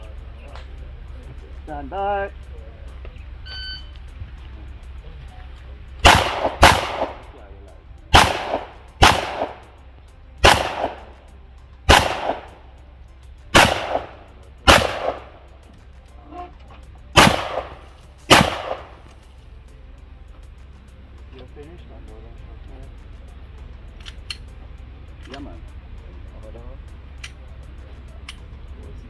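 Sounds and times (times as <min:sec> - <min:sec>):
gunshots with echo: 0:06.0 - 0:07.4, 0:08.1 - 0:09.7, 0:10.4 - 0:11.2, 0:11.9 - 0:12.6, 0:13.5 - 0:15.4, 0:17.2 - 0:19.0.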